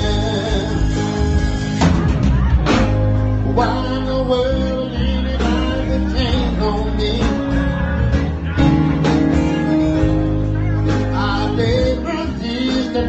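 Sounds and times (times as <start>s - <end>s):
bass guitar: 0.0s - 13.0s
electric guitar: 0.0s - 13.0s
keyboard: 0.0s - 13.0s.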